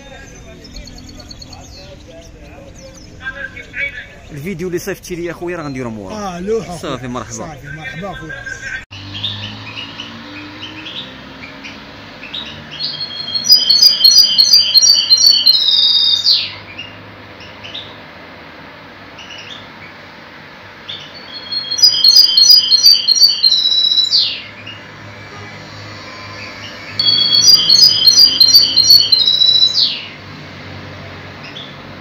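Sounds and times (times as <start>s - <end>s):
finch singing: 0.0s - 4.5s, 7.6s - 18.0s, 20.9s - 24.9s, 26.1s - 30.2s.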